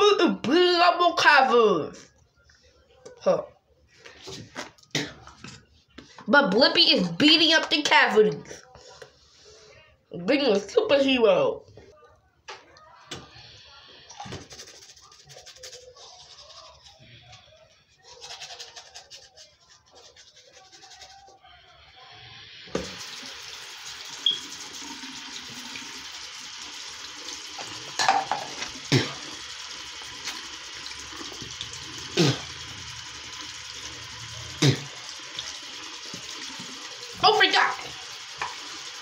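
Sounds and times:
toothbrush scrubbing teeth: 0:13.2 - 0:21.6, 0:24.2 - 0:39.0
tap running: 0:38.2 - 0:38.9.

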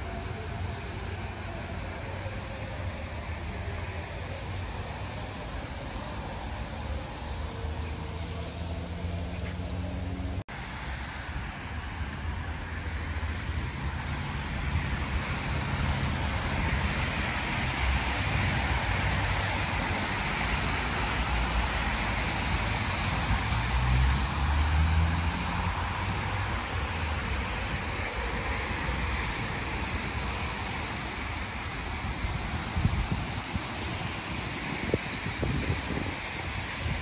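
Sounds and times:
passing cars rumbling: 0:00.0 - 0:37.0
tyre hiss on wet road: 0:10.5 - 0:37.0.

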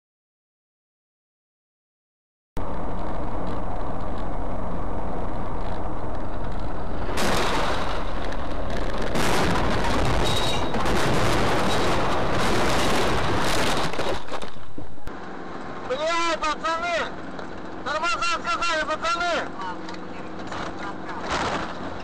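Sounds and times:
engine and road noise: 0:02.6 - 0:22.0
vehicle crash impacts: 0:06.4 - 0:14.9, 0:20.5 - 0:22.0
windshield shattering: 0:07.1 - 0:14.7.

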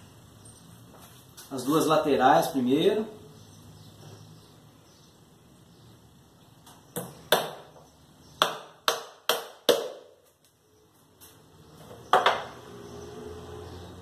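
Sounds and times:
hammer striking nail into wood: 0:07.0 - 0:07.8, 0:08.4 - 0:10.1.

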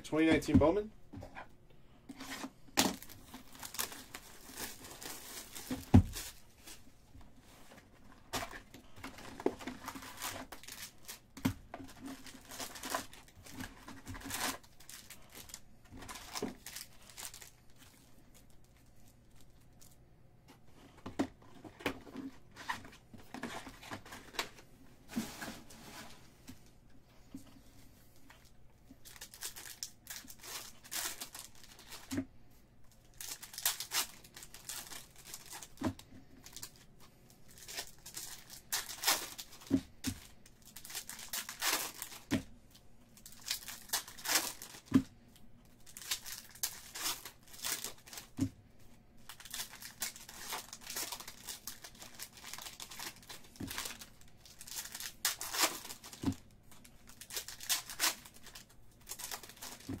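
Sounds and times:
foil wrappers crinkling and tearing: 0:02.2 - 0:06.9, 0:08.1 - 0:20.0, 0:28.2 - 0:32.2, 0:33.0 - 0:45.1, 0:45.7 - 0:48.5, 0:49.2 - 1:00.0.

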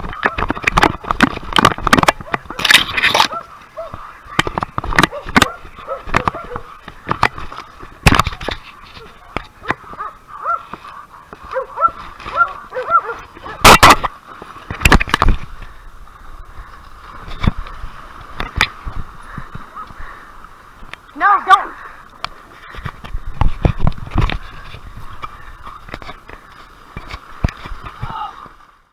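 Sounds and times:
camera knocking through brush: 0:00.0 - 0:10.1, 0:13.4 - 0:15.5
dogs barking: 0:02.2 - 0:06.8, 0:09.0 - 0:14.0.

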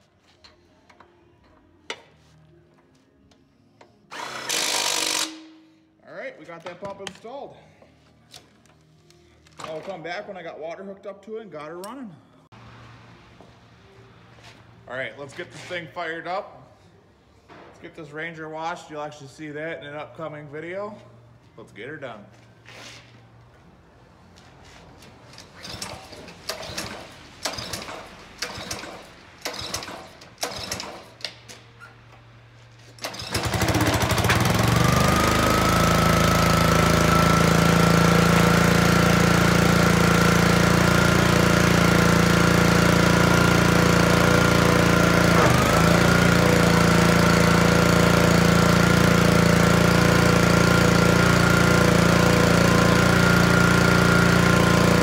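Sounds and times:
pressure washer engine running: 0:33.0 - 0:55.0.

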